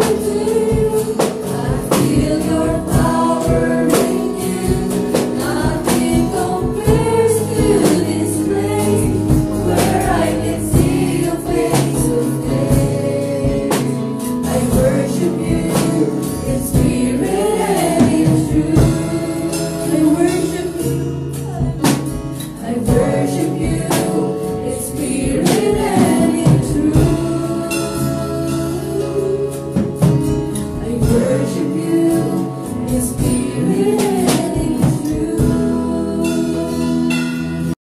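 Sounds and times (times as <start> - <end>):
keyboard chords: 0.0 - 37.8
girl singing into microphone: 30.9 - 37.2.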